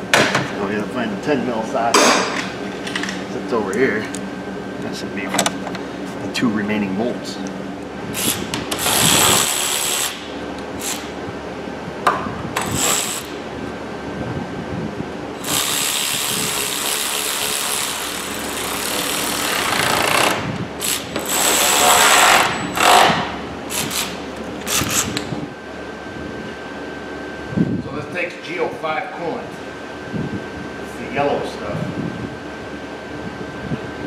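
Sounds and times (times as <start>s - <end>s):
electric ratchet whirring: 8.1s - 11.1s, 12.6s - 13.4s, 15.4s - 25.3s.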